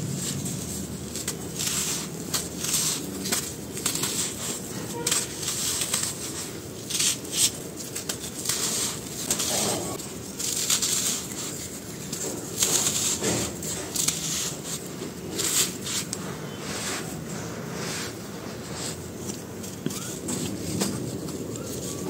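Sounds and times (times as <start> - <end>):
gritty crunches of crumbling chunks: 0.0 - 17.2.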